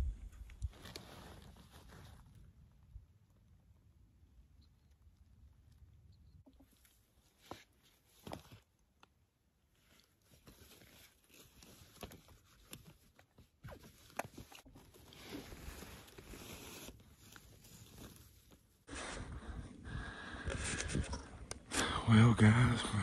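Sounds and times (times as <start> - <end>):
light clicks and crinkles: 0.2 - 3.4, 4.5 - 18.9
fabric decoy rustling in dry grass: 0.6 - 2.5, 9.7 - 13.2, 14.1 - 19.0.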